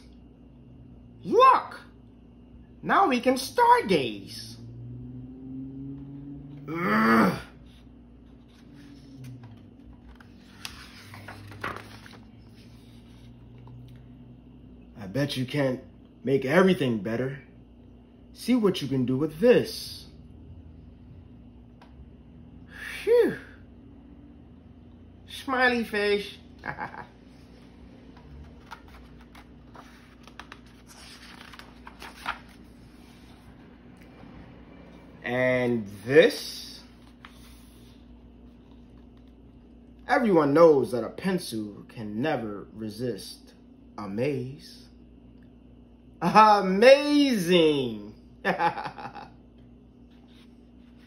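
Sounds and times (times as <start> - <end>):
faint steady hum: 0.0 - 51.0
book pages turning: 7.7 - 14.1, 27.3 - 34.1, 36.8 - 39.9, 50.0 - 51.0.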